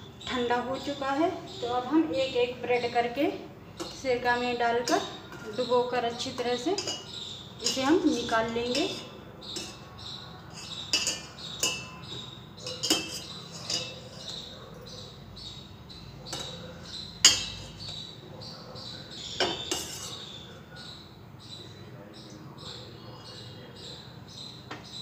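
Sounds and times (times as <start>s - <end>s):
utensils clinking on steel bowl: 3.7s - 14.6s, 16.3s - 18.1s, 19.2s - 20.4s.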